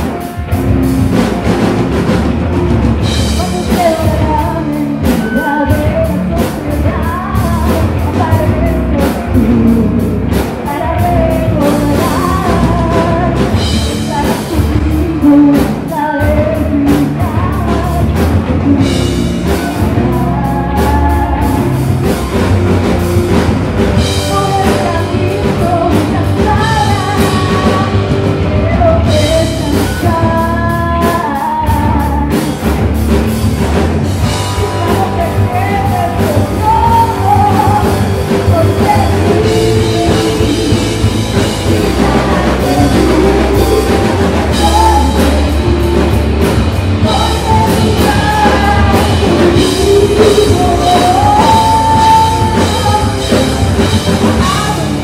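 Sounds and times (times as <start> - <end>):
bass guitar: 0.0 - 55.0
drum kit: 0.0 - 55.0
electric guitar: 0.0 - 55.0
woman singing lead vocal: 3.0 - 22.5, 24.0 - 32.8, 34.2 - 55.0.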